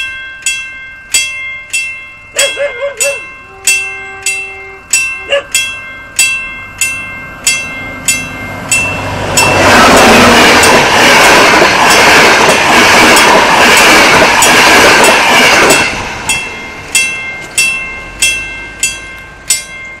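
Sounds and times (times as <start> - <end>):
level-crossing bell ringing: 0.0 - 10.8, 14.4 - 20.0
diesel train passing: 0.0 - 20.0
rush of wheel and wind noise: 7.6 - 18.8.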